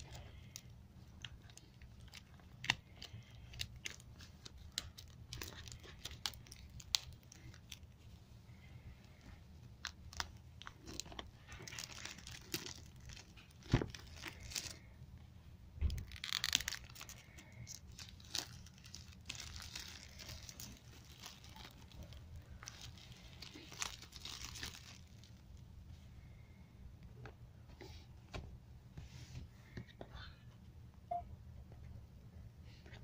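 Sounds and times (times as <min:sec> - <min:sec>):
plastic wrap tearing and crinkling: 0:00.0 - 0:07.9, 0:09.8 - 0:14.8, 0:15.9 - 0:25.4.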